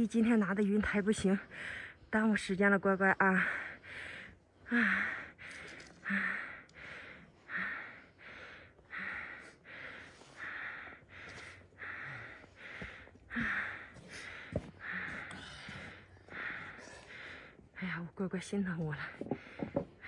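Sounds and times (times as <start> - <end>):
woman panting heavily: 1.4 - 2.1, 3.1 - 17.9.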